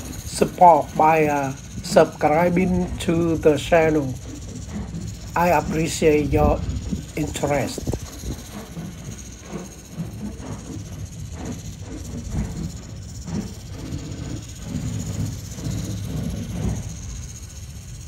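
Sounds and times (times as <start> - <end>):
electric toy motorcycle running: 0.0 - 10.2.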